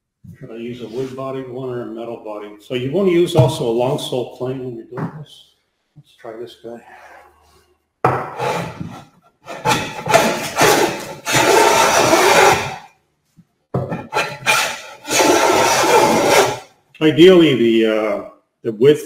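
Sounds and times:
hand plane rasping on wood: 0:08.4 - 0:12.8, 0:14.0 - 0:16.6.

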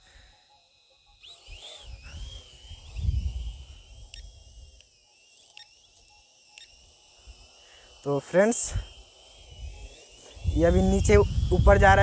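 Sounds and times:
small drone motors whining: 0:00.0 - 0:12.0
wind buffeting microphone: 0:10.4 - 0:12.0.

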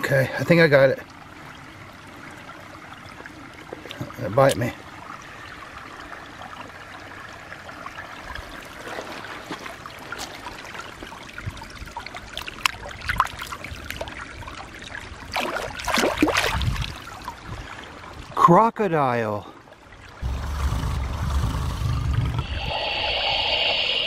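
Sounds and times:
stream water trickling: 0:00.0 - 0:24.0
water splashing: 0:08.1 - 0:18.0.

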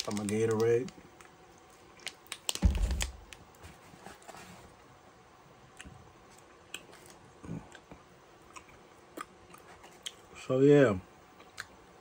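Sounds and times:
mouth and handling noises: 0:00.0 - 0:04.8
dull thump: 0:02.6 - 0:03.2.

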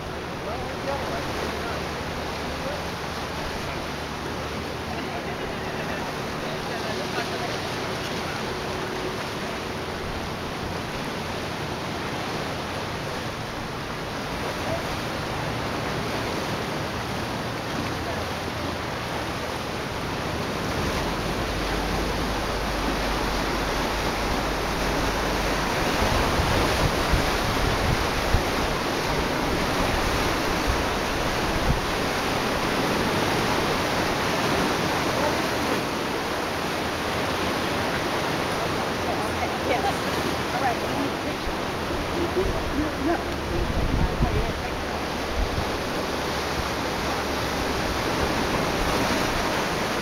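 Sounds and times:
waves washing against rocks: 0:00.0 - 0:50.0
wind on microphone: 0:20.0 - 0:36.2, 0:41.3 - 0:50.0.

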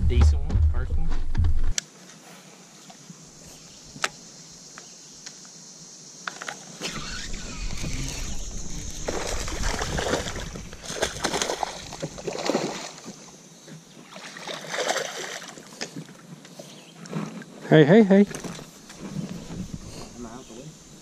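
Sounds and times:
water splashing against boat: 0:06.9 - 0:13.4, 0:14.0 - 0:16.2.

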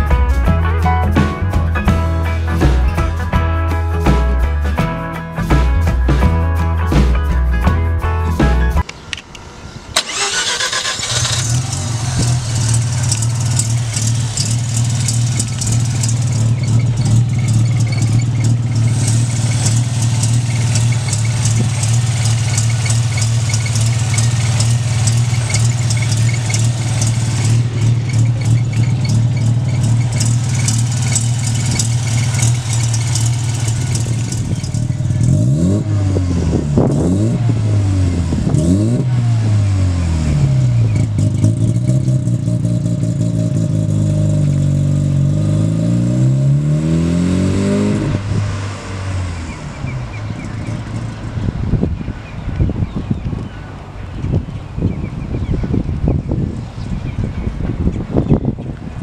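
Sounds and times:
engine revving with throttle blips: 0:09.1 - 0:53.5
rotary engine idling: 0:09.2 - 0:37.3, 0:49.4 - 0:52.4.

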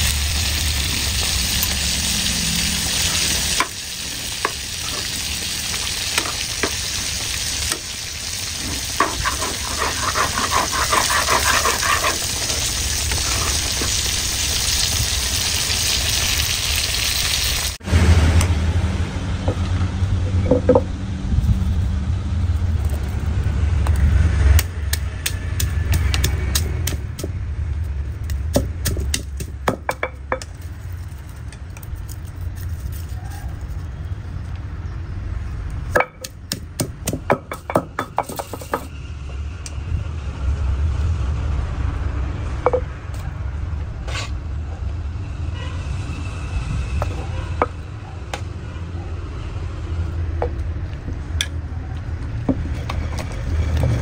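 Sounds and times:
vegetables sizzling in a pan: 0:00.0 - 0:17.8
pestle crushing garlic in mortar: 0:09.0 - 0:13.9, 0:24.6 - 0:27.4, 0:28.2 - 0:30.6, 0:36.0 - 0:38.9.

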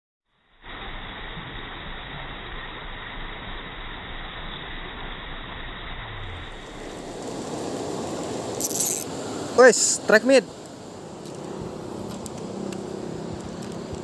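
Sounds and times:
muffled river rushing: 0:06.0 - 0:14.0.

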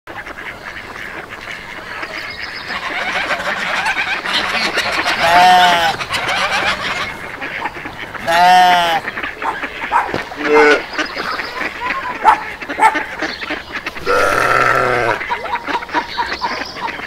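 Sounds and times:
flock of birds calling: 0:00.1 - 0:17.0
loud drawn-out bird call: 0:03.8 - 0:11.5, 0:13.4 - 0:15.2.

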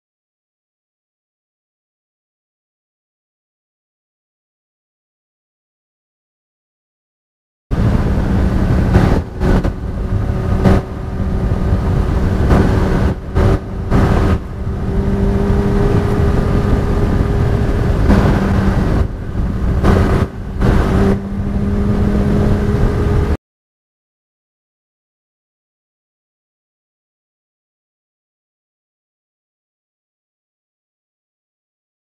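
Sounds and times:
motorcycle engine running: 0:07.7 - 0:23.4
wind rumble on microphone: 0:07.7 - 0:23.4.

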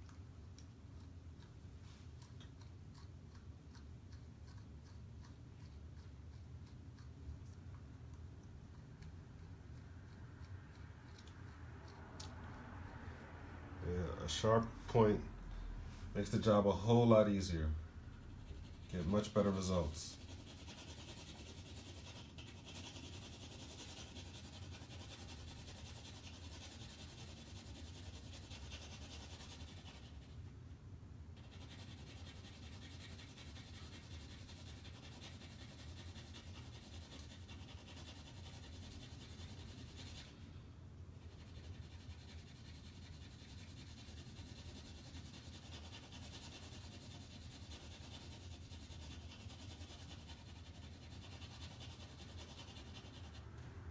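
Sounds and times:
pencil scratching on paper: 0:18.0 - 0:30.4, 0:31.4 - 0:40.3, 0:41.2 - 0:53.6.

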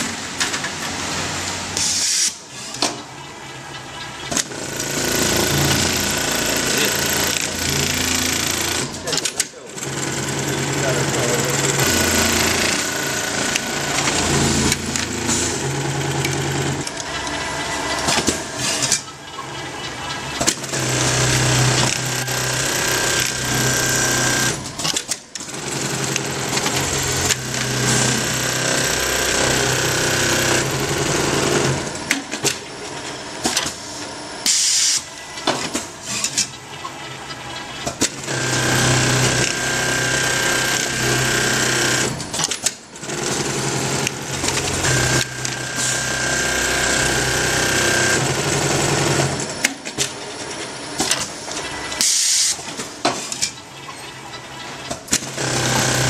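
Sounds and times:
industrial sewing machine rattling: 0:04.3 - 0:19.0, 0:20.4 - 0:32.6, 0:37.7 - 0:50.5, 0:55.0 - 0:56.0.

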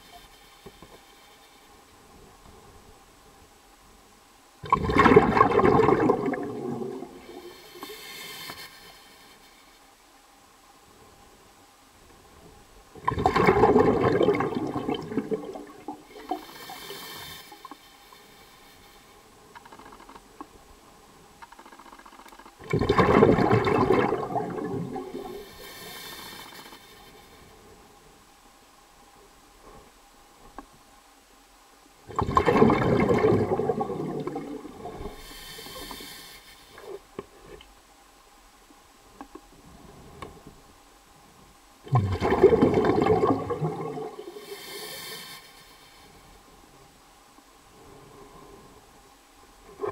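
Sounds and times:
faint hiss: 0:00.0 - 0:49.9
water rushing and gurgling: 0:04.5 - 0:08.0, 0:12.8 - 0:19.1, 0:22.6 - 0:27.6, 0:32.0 - 0:37.1, 0:41.1 - 0:45.1
faint clicks: 0:19.5 - 0:20.6, 0:21.3 - 0:22.6, 0:30.4 - 0:30.8, 0:36.7 - 0:37.8, 0:39.1 - 0:39.5.

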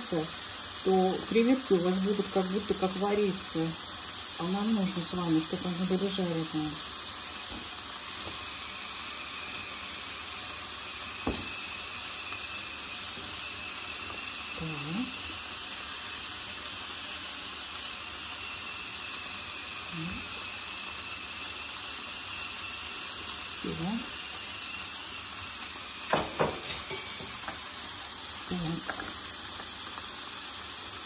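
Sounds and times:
shrimp sizzling in a pan: 0:00.0 - 0:31.0.

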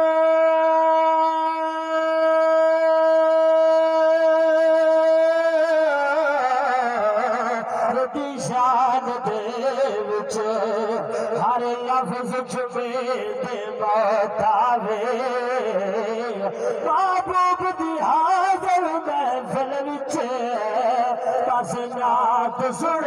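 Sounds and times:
man singing unaccompanied: 0:00.0 - 0:23.0.

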